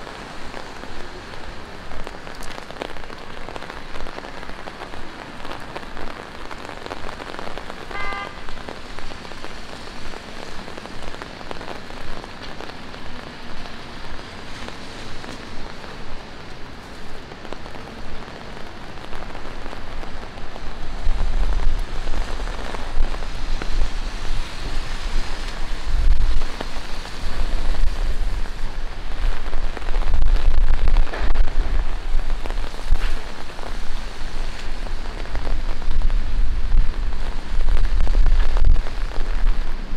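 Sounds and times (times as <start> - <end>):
rain falling on pavement: 0.0 - 39.9
short pitched tone: 7.9 - 8.5.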